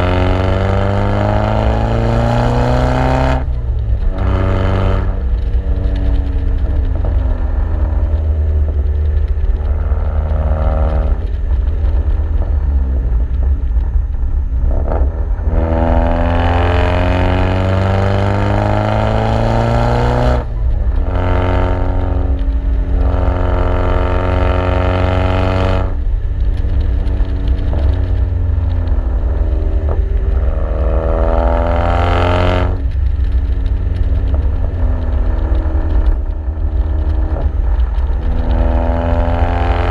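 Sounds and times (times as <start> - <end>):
car exhaust revving: 0.0 - 39.9
wind and road noise: 0.0 - 39.9.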